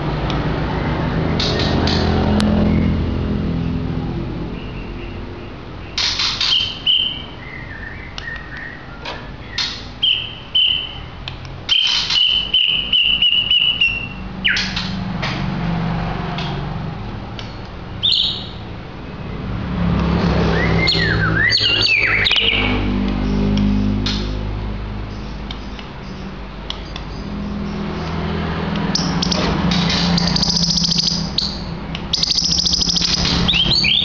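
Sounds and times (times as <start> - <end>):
bird singing whistled notes: 4.6 - 11.1, 11.7 - 14.8, 18.0 - 18.6, 20.5 - 22.8, 30.2 - 34.0.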